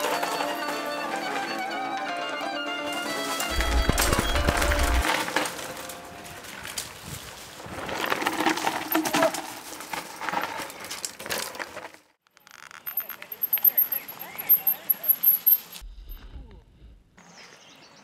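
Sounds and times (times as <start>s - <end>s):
bike rattling: 0.0s - 1.6s, 3.0s - 15.8s
bike tyres crunching on dirt: 3.0s - 15.8s.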